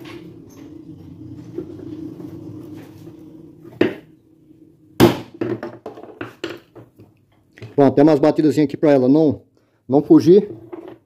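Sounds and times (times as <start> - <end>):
steady low hum: 0.0 - 5.4.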